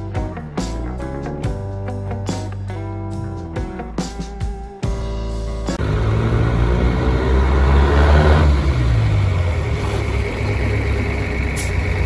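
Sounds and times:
truck engine accelerating: 0:05.6 - 0:12.0.

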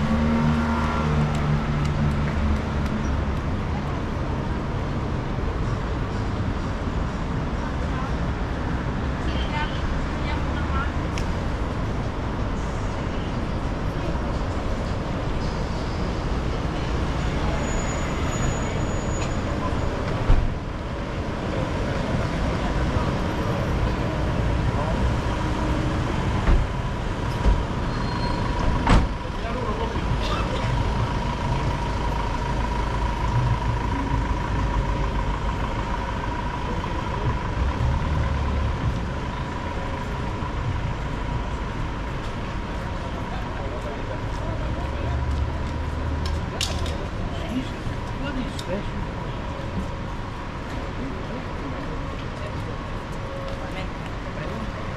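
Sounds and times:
city street traffic: 0:00.0 - 0:54.9
large vehicle engine rumble: 0:00.0 - 0:54.9.

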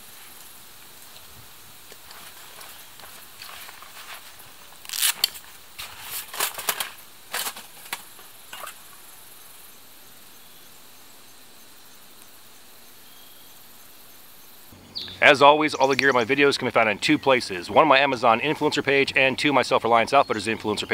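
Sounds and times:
faint steady hiss: 0:00.0 - 0:20.9
fabric rustle: 0:02.0 - 0:08.7.

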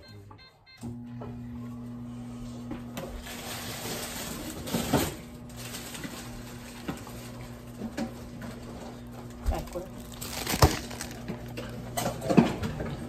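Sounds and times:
kitchen appliance humming: 0:00.6 - 0:13.0
rustling: 0:09.6 - 0:11.7.

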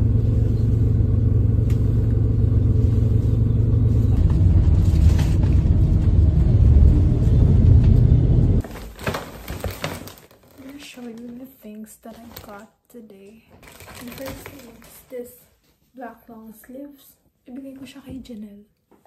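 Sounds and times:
bus engine and road rumble: 0:00.0 - 0:08.6.

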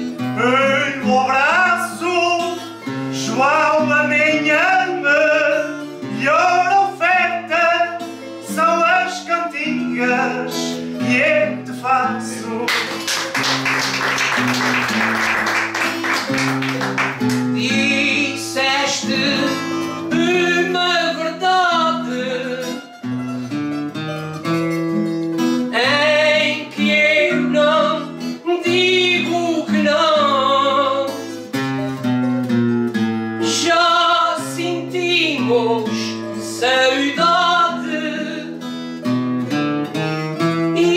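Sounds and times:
acoustic guitars: 0:00.0 - 0:40.9
person singing folk song: 0:00.0 - 0:40.9.

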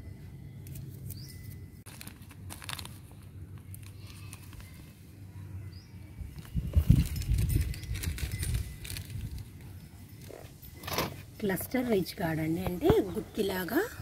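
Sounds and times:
plastic packet rustling: 0:01.9 - 0:04.9, 0:06.4 - 0:09.6.

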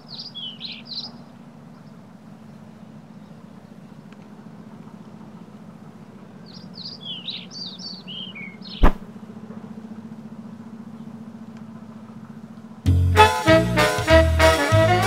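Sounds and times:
birds chirping: 0:00.0 - 0:04.1, 0:06.4 - 0:09.0.

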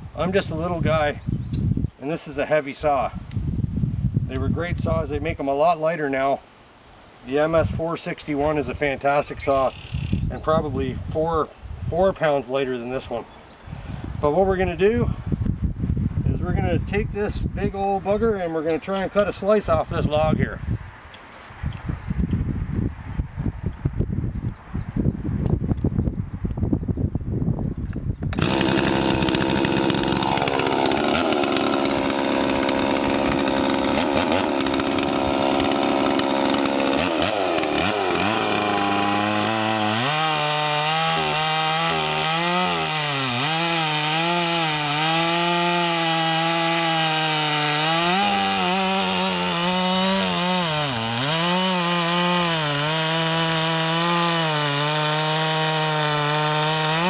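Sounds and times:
chainsaw cutting log: 0:28.3 - 0:57.0.

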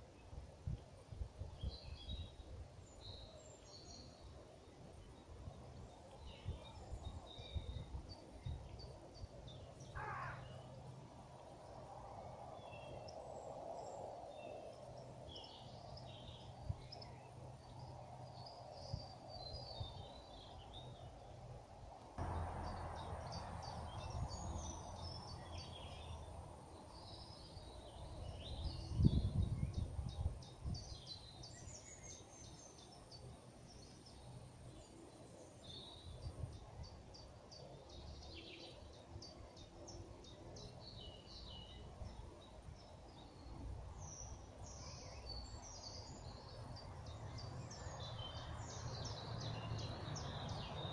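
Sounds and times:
low buffeting sound: 0:22.2 - 0:26.6
low outdoor rumble: 0:22.2 - 0:28.7
small birds chirping: 0:22.2 - 0:50.9.

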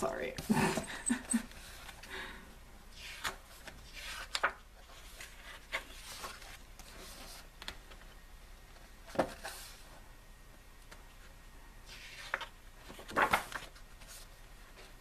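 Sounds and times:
photobook pages rustling: 0:02.9 - 0:10.0, 0:10.8 - 0:15.0.

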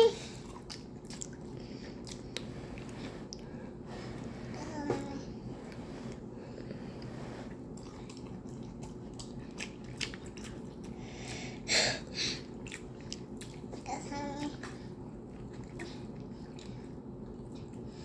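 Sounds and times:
wet chewing and lip-smacking: 0:00.3 - 0:03.4, 0:07.5 - 0:11.4, 0:12.4 - 0:17.9.

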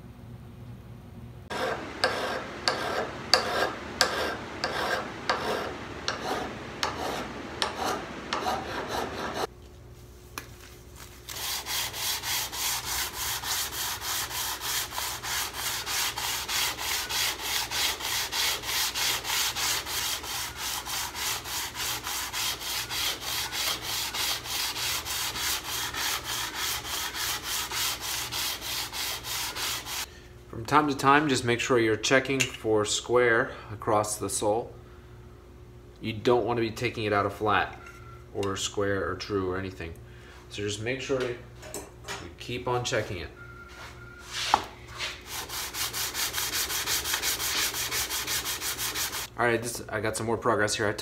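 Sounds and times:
plane sole scratching on sandpaper: 0:01.5 - 0:09.5, 0:11.3 - 0:30.1, 0:44.3 - 0:49.3
slow scraping strokes: 0:01.5 - 0:09.5, 0:44.2 - 0:49.3.

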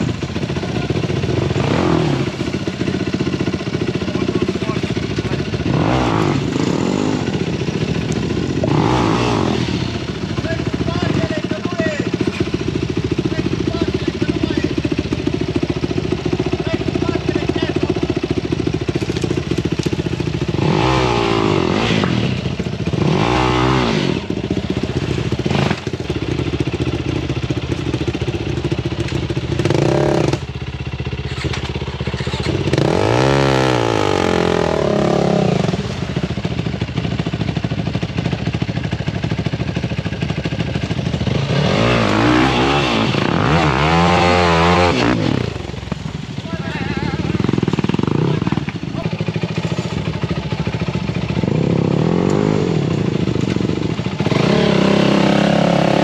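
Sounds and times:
quad bike engine revving: 0:00.0 - 0:56.0.

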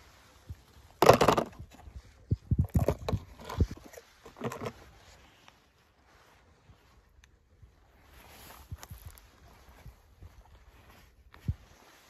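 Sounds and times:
toy car clattering in plastic basin: 0:01.0 - 0:01.8, 0:02.6 - 0:04.8
small knocks and rattles: 0:01.0 - 0:04.8.

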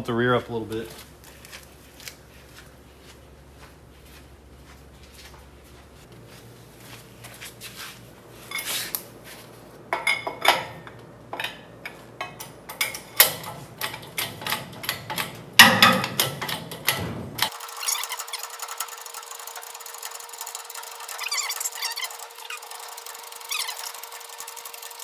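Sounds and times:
hydraulic jack clanks and clicks: 0:10.0 - 0:17.6.

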